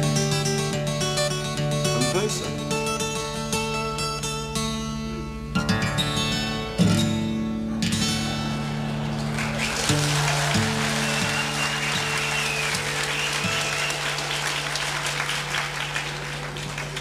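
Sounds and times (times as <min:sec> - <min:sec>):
acoustic guitar chord: 0:00.0 - 0:13.9
audience applauding: 0:08.1 - 0:17.0
thin high whistle: 0:10.6 - 0:14.2.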